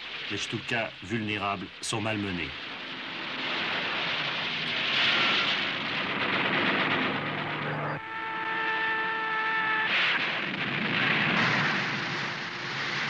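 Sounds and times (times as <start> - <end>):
aircraft engines: 1.0 - 13.0
falling plane whine: 2.2 - 13.0
explosion and splash: 2.5 - 7.7, 9.8 - 13.0
machine-gun fire: 9.6 - 13.0.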